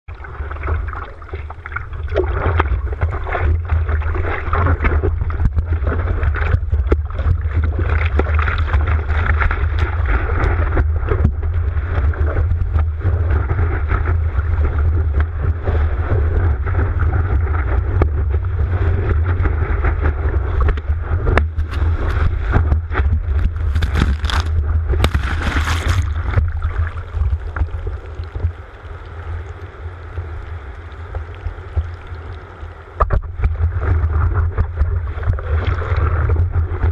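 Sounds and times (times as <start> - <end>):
deep constant rumble: 0.0 - 36.9
muffled water splashing on surfboard: 0.1 - 36.9
whitewater washing over board: 21.4 - 27.4.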